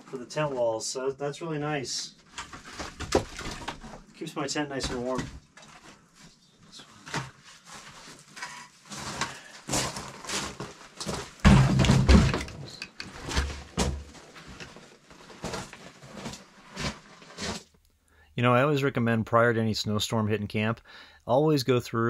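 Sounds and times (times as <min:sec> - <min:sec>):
wooden logs clunking together: 0:11.4 - 0:14.2.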